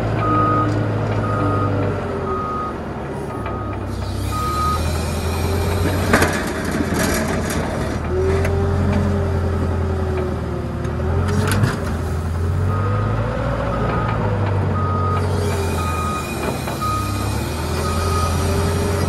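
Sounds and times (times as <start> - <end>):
tractor engine whining under load: 0.0 - 19.0
reversing alarm beeps: 0.2 - 5.8, 14.8 - 19.0.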